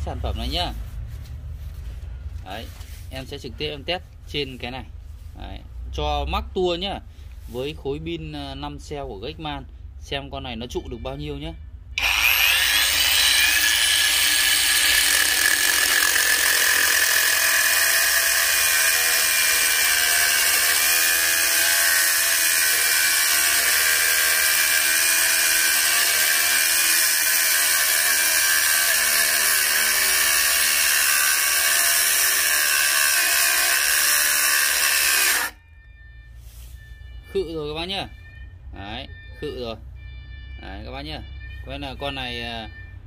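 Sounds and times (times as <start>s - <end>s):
angle grinder cutting steel: 12.0s - 35.6s.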